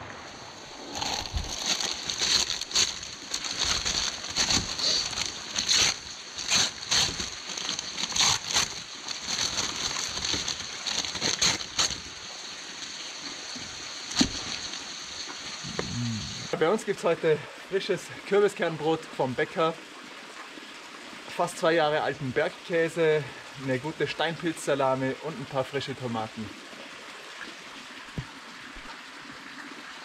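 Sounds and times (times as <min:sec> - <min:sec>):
rain falling: 0:00.0 - 0:17.4.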